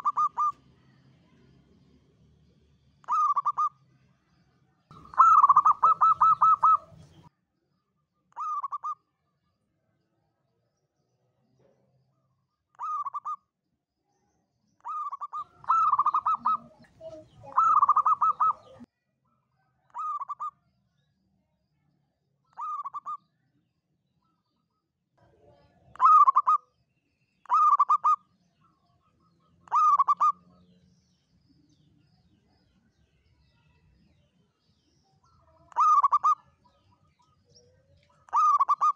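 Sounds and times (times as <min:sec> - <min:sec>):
dove cooing: 0:00.0 - 0:00.5, 0:03.0 - 0:03.7, 0:04.9 - 0:07.3, 0:14.8 - 0:18.9, 0:26.0 - 0:26.6, 0:27.5 - 0:28.2, 0:29.7 - 0:30.4, 0:35.7 - 0:36.5, 0:38.3 - 0:38.9.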